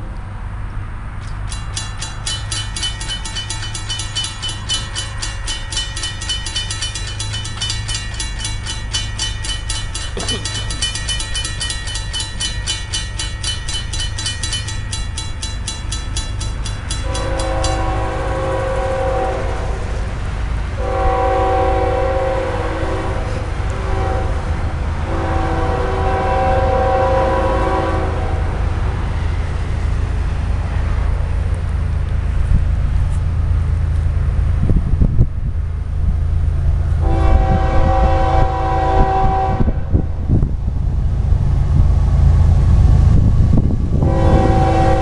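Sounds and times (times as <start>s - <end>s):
low rumble of train: 0.0s - 45.0s
railroad crossing bell ringing: 1.3s - 31.9s, 41.1s - 45.0s
locomotive horn: 17.0s - 28.8s, 37.0s - 40.1s, 43.9s - 45.0s.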